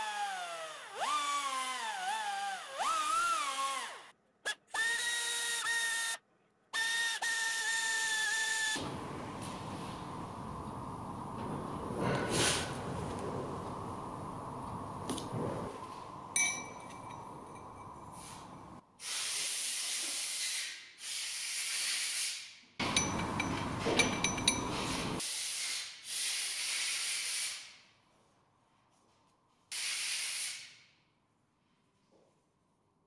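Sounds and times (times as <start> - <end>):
light metallic clinks: 16.3 - 18.8, 22.8 - 25.2.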